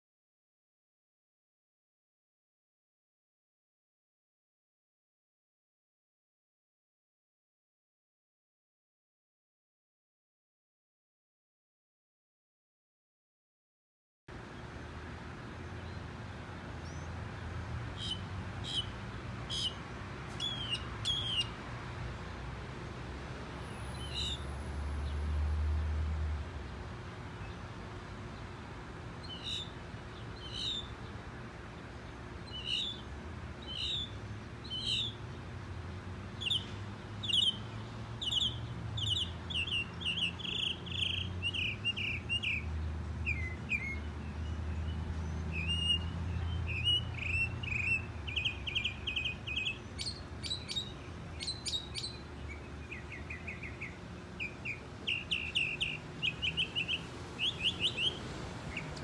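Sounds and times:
mockingbird singing: 18.0 - 19.8, 20.4 - 21.5, 29.2 - 31.2, 32.4 - 35.3, 36.3 - 42.7, 43.3 - 59.0.

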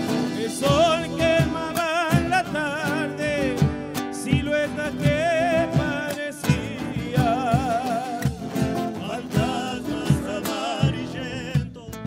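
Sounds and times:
man singing with vibrato: 0.0 - 12.0
steady drum beat: 0.0 - 12.0
strummed acoustic guitars: 0.0 - 12.0.

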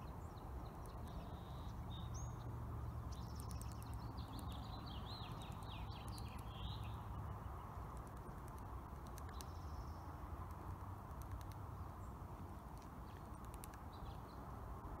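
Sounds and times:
woodpecker tapping on bark: 3.0 - 6.7, 7.8 - 9.8, 10.4 - 11.7, 12.6 - 14.1.

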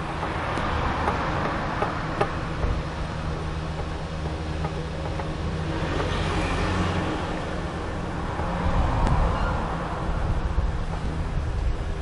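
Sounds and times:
steady low rumble: 10.0 - 12.0.

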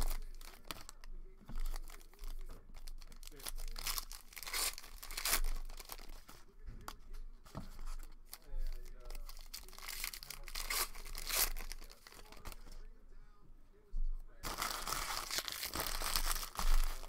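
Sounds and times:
foil wrappers tearing and crinkling: 0.0 - 6.3, 8.3 - 12.6, 14.4 - 17.0.

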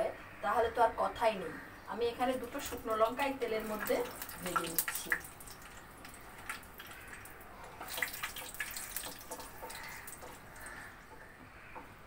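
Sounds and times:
chillies sizzling in hot oil: 2.0 - 10.8.

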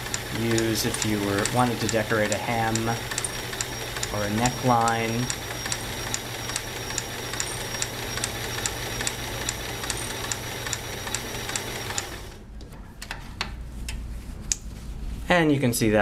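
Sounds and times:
light ticking of sewing machine: 0.0 - 12.4
sewing machine running: 0.0 - 12.4.

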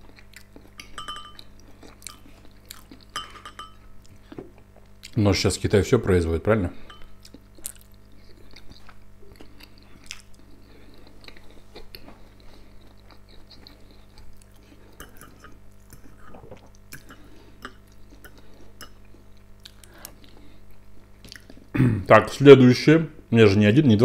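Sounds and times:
close-up chewing: 0.0 - 3.2, 7.2 - 21.6
low electrical hum: 0.0 - 24.0.

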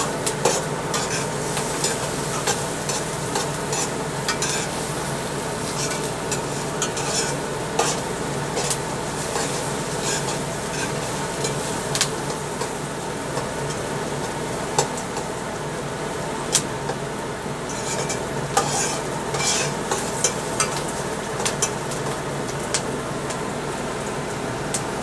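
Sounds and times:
onions sizzling in oil: 0.0 - 25.0
metal spoon scraping a pot: 0.4 - 4.8, 5.7 - 8.0, 9.4 - 11.6, 17.7 - 20.8.

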